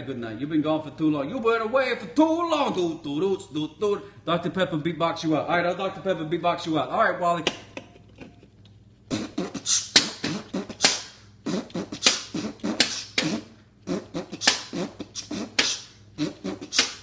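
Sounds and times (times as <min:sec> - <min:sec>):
person beatboxing: 0:09.1 - 0:17.0.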